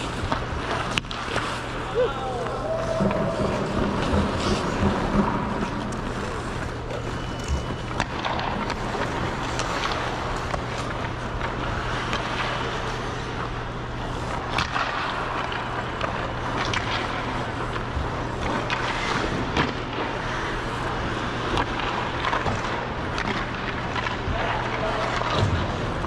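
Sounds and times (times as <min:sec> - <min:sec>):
ice skate blades scraping on ice: 0:00.0 - 0:02.0, 0:02.7 - 0:13.4
steady low hum: 0:00.0 - 0:26.0.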